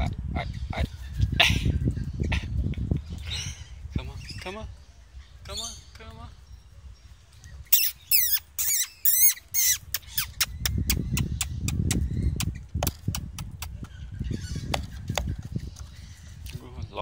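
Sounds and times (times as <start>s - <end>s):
parrots screeching: 7.7s - 12.3s.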